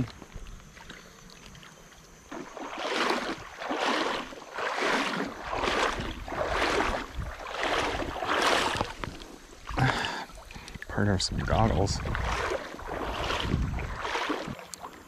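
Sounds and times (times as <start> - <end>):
wading through shallow water: 0.0 - 15.0.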